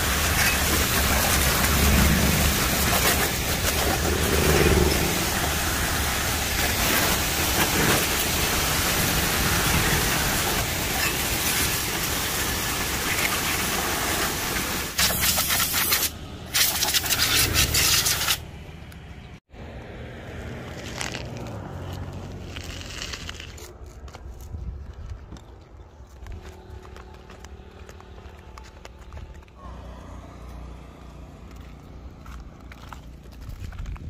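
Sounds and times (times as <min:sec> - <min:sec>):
pressure washer spraying water: 0:00.0 - 0:18.4.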